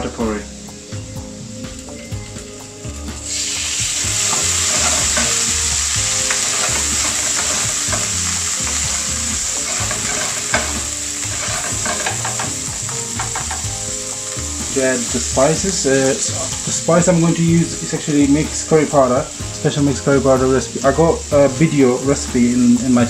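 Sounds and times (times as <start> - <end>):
loud sizzle in frying pan: 0.0 - 23.0
spatula scraping pan: 3.7 - 13.8.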